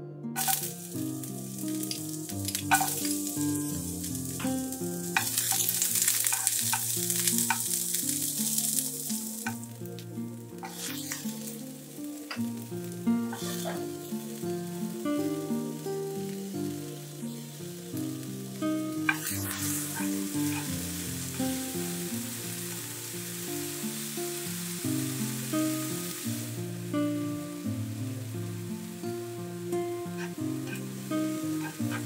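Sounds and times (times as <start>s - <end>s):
tongs clicking on pan: 0.4s - 0.7s, 1.5s - 3.6s, 4.3s - 9.7s, 19.1s - 20.8s, 30.2s - 32.0s
onion sizzling in hot oil: 0.4s - 32.0s.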